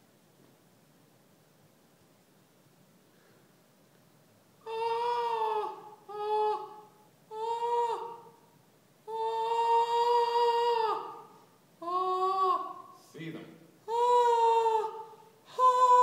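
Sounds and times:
woman singing vowel tones: 9.1 - 13.0, 13.9 - 16.0.

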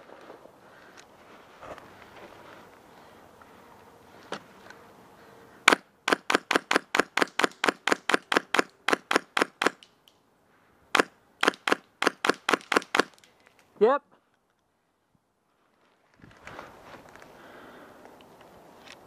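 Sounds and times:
airsoft gun shots: 5.7 - 9.8, 10.9 - 13.2.

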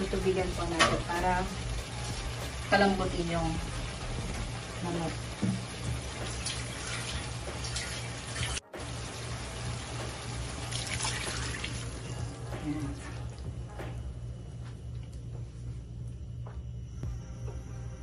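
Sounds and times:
water pouring into frying pan: 5.3 - 12.0.

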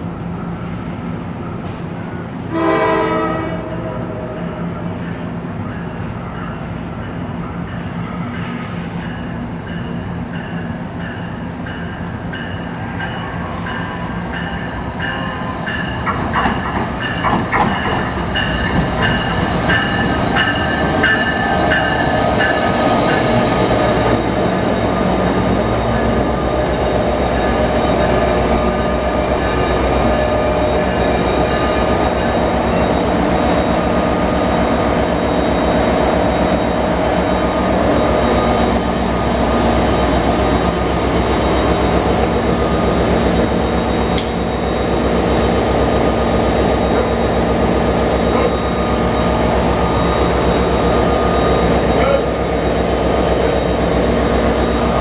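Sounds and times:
train approaching: 0.0 - 55.0
train rumble: 0.0 - 55.0
wheel squeal: 4.4 - 10.2.

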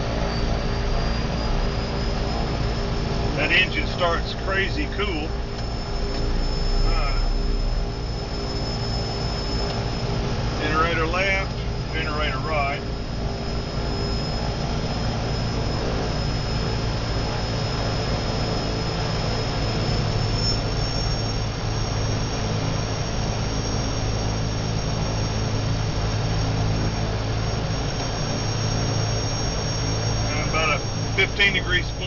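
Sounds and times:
turboprop engines whining: 0.0 - 32.0.

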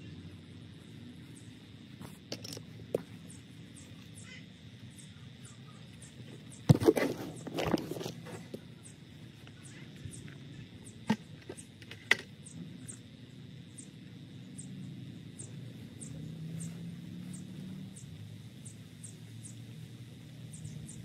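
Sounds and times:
soil spread by hand: 6.3 - 8.7.

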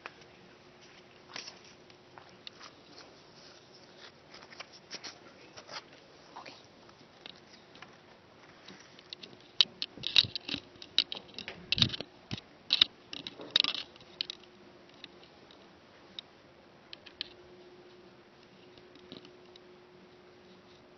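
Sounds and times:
faint steady hum: 0.0 - 20.9
paper rustling: 2.5 - 6.6.

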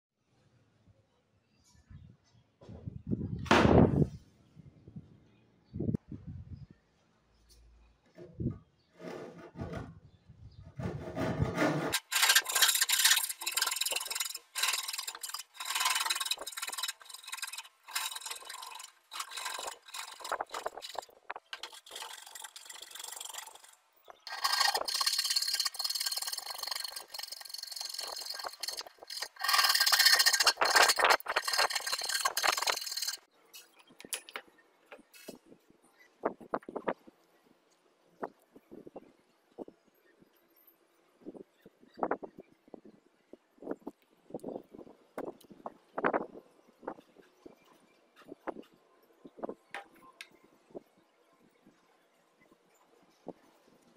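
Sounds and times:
hand saw cutting wood: 10.8 - 33.2.

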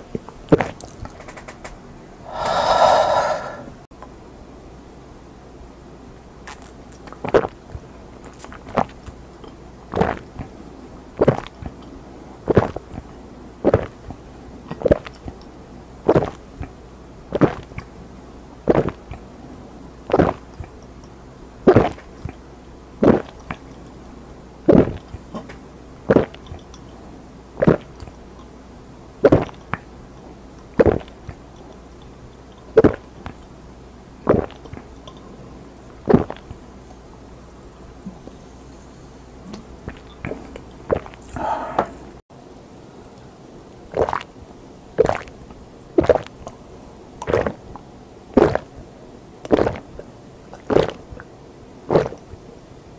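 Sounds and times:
person gulping a drink: 2.3 - 3.7, 11.2 - 11.7, 13.6 - 14.0, 17.3 - 17.8, 18.7 - 19.2, 20.1 - 20.8, 21.7 - 22.4, 23.0 - 23.8, 26.1 - 26.6, 27.6 - 28.1, 29.2 - 29.7, 30.8 - 31.4, 32.8 - 33.4, 34.2 - 35.2, 36.1 - 36.6, 39.6 - 42.1, 43.9 - 44.3, 45.0 - 45.3, 46.0 - 46.3, 47.2 - 47.6, 48.4 - 48.7, 49.5 - 51.3, 51.9 - 52.3.

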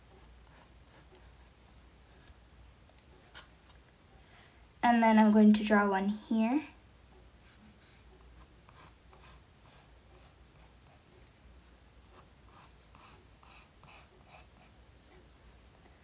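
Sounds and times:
pencil scratching on paper: 0.1 - 1.9, 7.4 - 11.3, 12.1 - 15.2.

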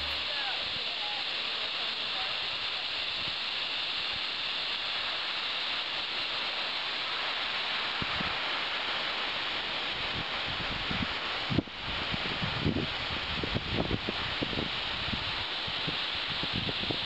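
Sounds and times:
waterfall rushing: 0.0 - 1.2.

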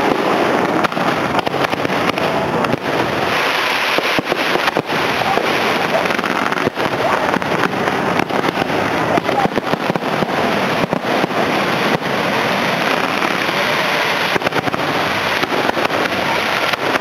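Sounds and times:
constant noisy din: 0.0 - 17.0
fireworks bursting: 0.0 - 17.0.

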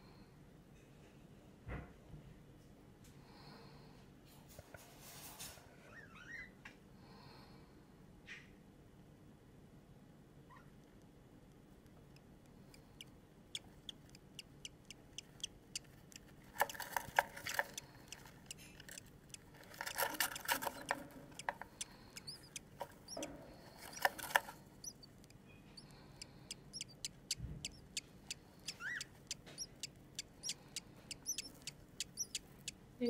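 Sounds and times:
budgerigars peeping: 12.8 - 32.8
budgerigars chirring chatter: 19.8 - 25.1, 25.8 - 32.8.

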